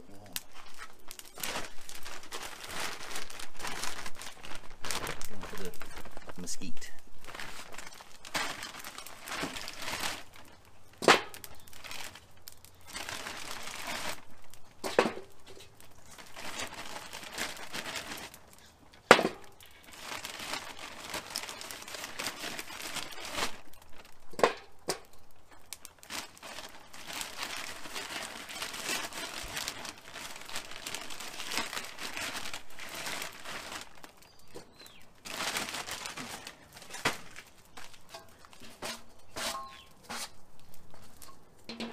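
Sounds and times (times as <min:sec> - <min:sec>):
bag rustling and crinkling: 0:00.0 - 0:41.9
wood chunks knocking onto charcoal: 0:07.9 - 0:20.0, 0:20.6 - 0:30.4, 0:36.1 - 0:41.9.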